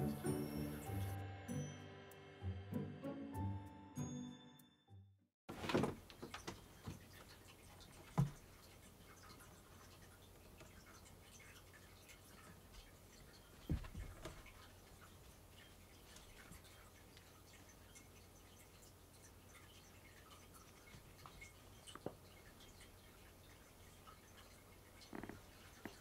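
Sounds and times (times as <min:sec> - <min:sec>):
light ticks and taps of cats: 0:06.1 - 0:26.0.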